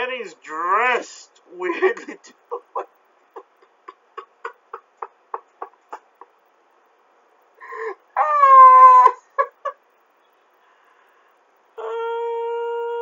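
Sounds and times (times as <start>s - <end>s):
high-pitched squealing laugh: 1.6s - 6.5s, 7.7s - 9.8s
man laughing: 1.6s - 6.5s, 8.9s - 9.8s.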